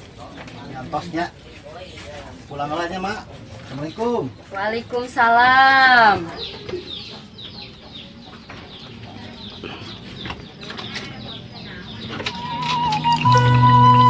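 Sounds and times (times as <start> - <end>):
birds chirping: 0.0 - 14.0
music with long held tones: 12.3 - 14.0.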